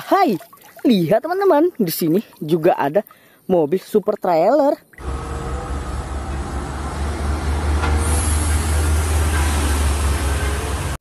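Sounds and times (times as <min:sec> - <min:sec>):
diesel truck engine rumbling: 0:05.0 - 0:11.0
road noise: 0:05.0 - 0:11.0.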